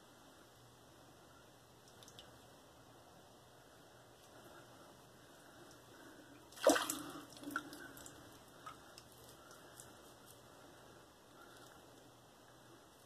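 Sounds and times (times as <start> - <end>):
water splash: 6.5 - 7.7.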